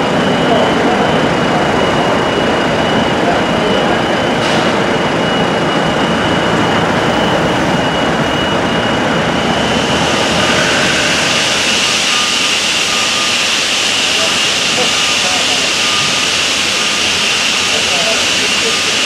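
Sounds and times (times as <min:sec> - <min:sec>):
heavy construction machinery running: 0:00.0 - 0:19.0
thin high whine: 0:00.0 - 0:19.0
hiss: 0:10.0 - 0:19.0.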